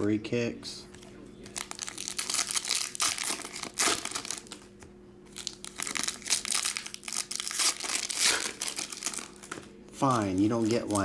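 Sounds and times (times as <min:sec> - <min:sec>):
foil wrapper tearing and crinkling: 0:01.4 - 0:04.6, 0:05.3 - 0:11.0.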